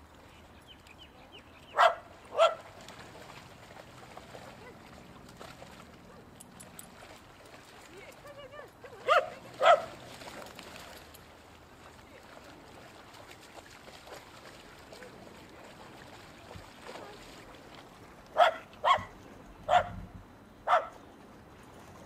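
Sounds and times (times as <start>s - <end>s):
dog barking: 1.7s - 2.6s, 9.0s - 9.9s, 18.4s - 19.1s, 19.7s - 20.0s, 20.7s - 21.0s.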